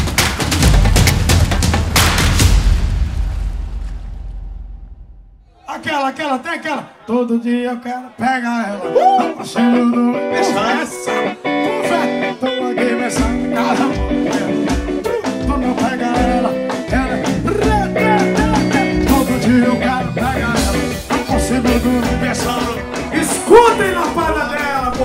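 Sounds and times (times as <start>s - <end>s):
drums: 0.0s - 5.4s, 13.0s - 25.0s
person singing: 7.1s - 25.0s
electric guitar: 8.6s - 25.0s.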